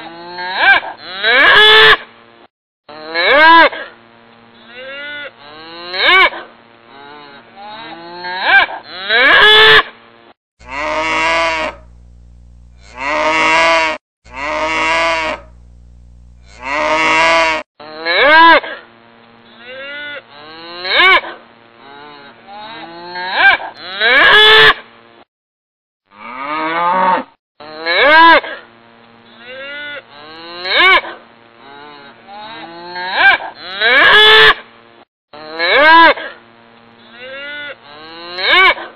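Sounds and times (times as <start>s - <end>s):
low steady hum: 10.6s - 17.6s
cattle mooing: 10.6s - 18.2s.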